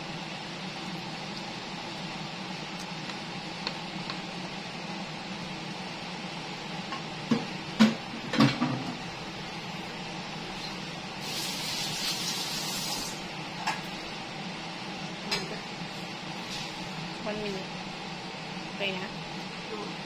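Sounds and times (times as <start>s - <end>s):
steady background hum: 0.0s - 20.0s
hiss: 11.2s - 13.2s.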